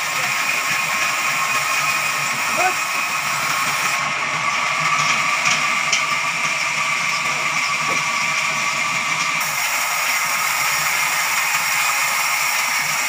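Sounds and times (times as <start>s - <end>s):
band saw cutting log: 0.0s - 13.0s.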